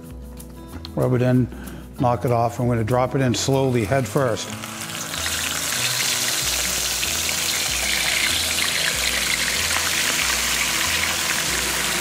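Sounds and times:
background music bass line: 0:00.0 - 0:12.0
oil sizzling and crackling: 0:03.3 - 0:12.0.

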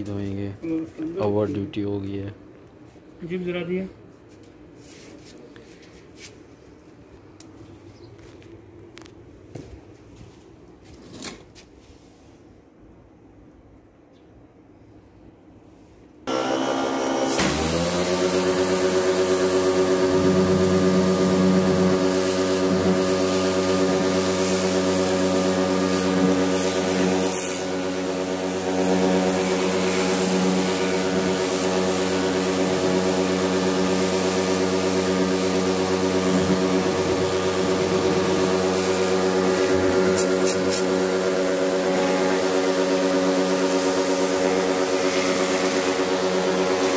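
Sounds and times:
pressure washer motor humming: 0:16.3 - 0:46.9.

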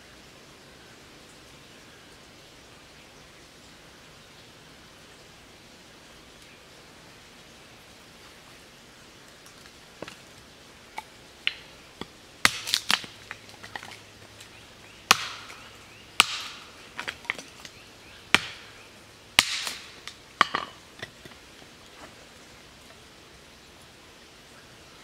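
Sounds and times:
wood splitting crackle: 0:09.5 - 0:14.5, 0:15.1 - 0:18.7, 0:19.4 - 0:22.2
hatchet chopping wood: 0:11.5 - 0:13.9, 0:15.1 - 0:15.6, 0:16.2 - 0:17.5, 0:18.3 - 0:18.7, 0:19.4 - 0:21.2.

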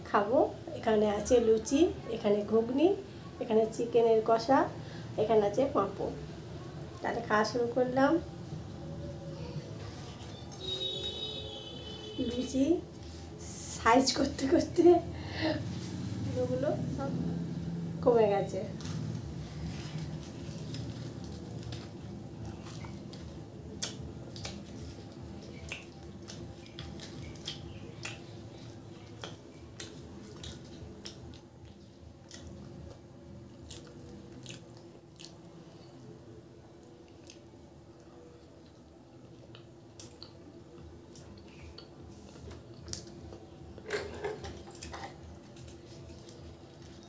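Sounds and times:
faint steady hum: 0:00.0 - 0:47.0
wet chewing mouth clicks: 0:20.5 - 0:35.9, 0:39.4 - 0:43.5.

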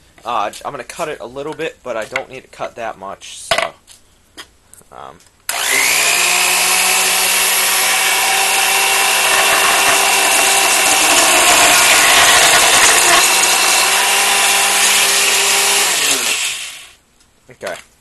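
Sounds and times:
band saw cutting plastic pipe: 0:05.5 - 0:17.0.

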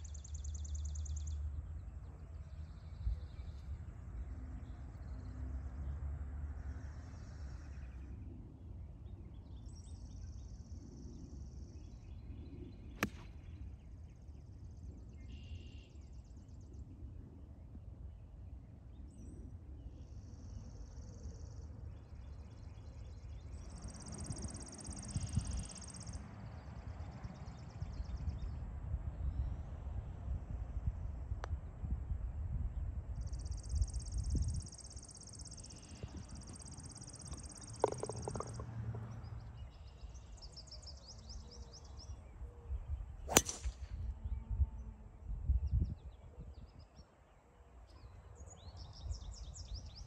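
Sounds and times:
songbirds singing: 0:00.0 - 0:06.0, 0:06.6 - 0:29.8, 0:32.6 - 0:50.0
golf club striking ball: 0:13.0 - 0:13.4, 0:37.7 - 0:38.6, 0:43.3 - 0:44.0.

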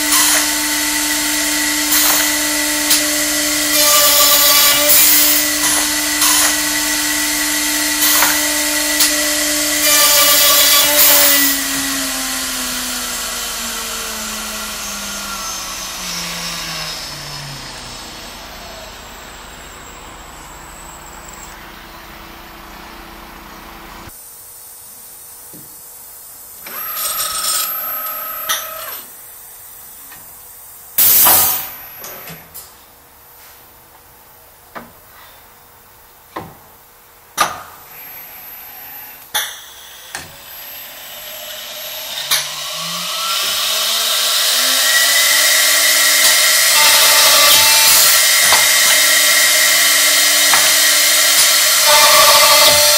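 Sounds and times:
router spindle cutting wood: 0:00.0 - 0:19.6, 0:40.4 - 0:52.9.

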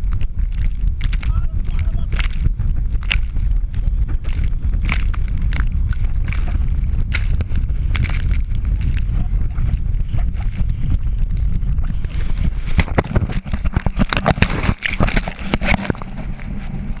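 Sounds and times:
sharp knocks and rustles: 0:00.0 - 0:17.0
wind buffeting microphone: 0:00.0 - 0:17.0.

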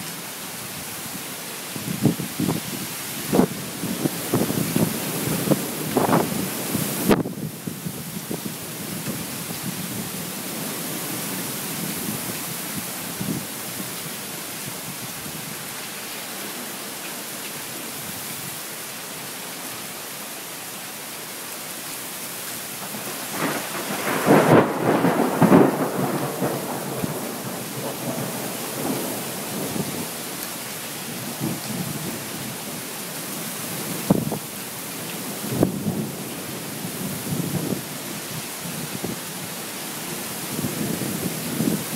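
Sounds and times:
heavy rain: 0:00.0 - 0:41.9
thunder rumbling: 0:22.8 - 0:30.2
sharp thunder crack: 0:23.3 - 0:29.6.

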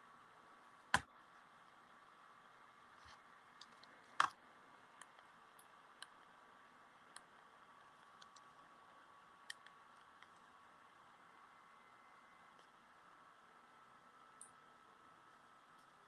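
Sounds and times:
computer clicks and taps: 0:00.9 - 0:01.1.

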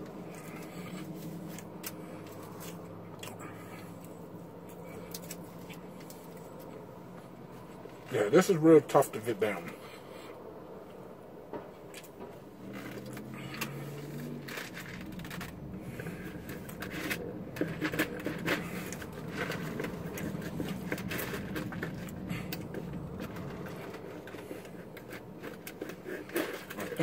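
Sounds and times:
chewing food: 0:00.0 - 0:08.1
low hum in car cabin: 0:00.0 - 0:27.0.

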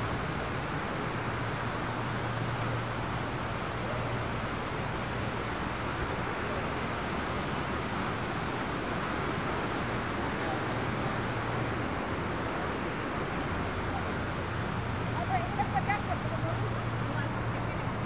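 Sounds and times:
distant traffic: 0:00.0 - 0:18.0.

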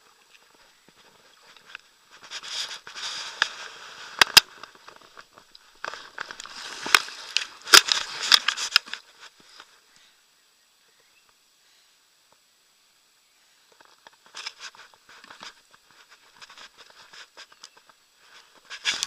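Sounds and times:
jacket rustling against camera: 0:00.5 - 0:09.7.

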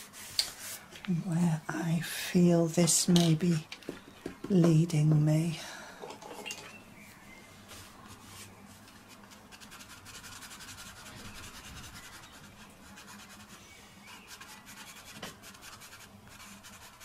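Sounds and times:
pencil scratching on paper: 0:09.1 - 0:17.0.

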